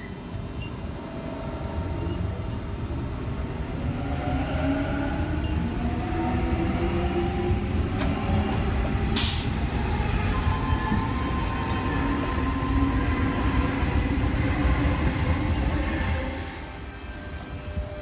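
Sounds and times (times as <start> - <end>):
stationary train hum: 0.0 - 18.0
train doors closing: 5.0 - 18.0
loud hiss burst: 9.2 - 9.8.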